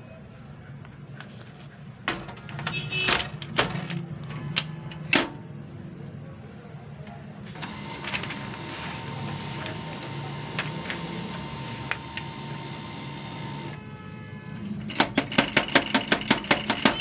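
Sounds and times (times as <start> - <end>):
printer motors whirring: 7.4 - 13.8.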